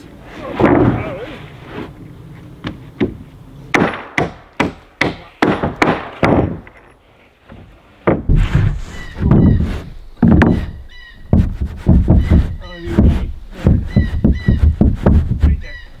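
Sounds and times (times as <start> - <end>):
wooden sheet thudding down: 0.5 - 1.3, 7.5 - 15.6
hammer striking nails into wood: 3.0 - 6.7.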